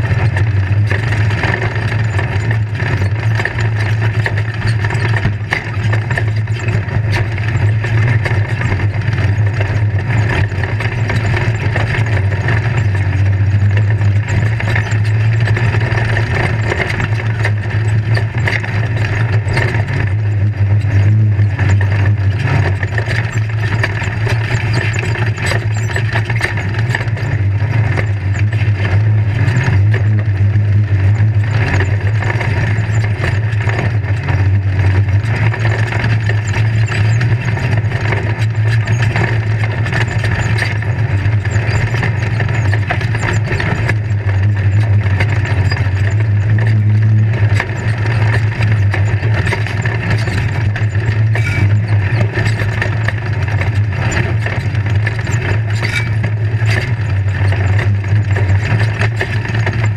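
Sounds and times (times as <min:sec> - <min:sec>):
chassis rattling and knocking: 0:00.0 - 0:59.9
engine low drone: 0:00.0 - 0:59.9.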